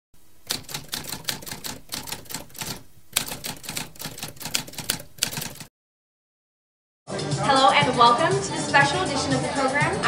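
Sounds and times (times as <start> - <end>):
typewriter keys clacking: 0.4 - 5.7.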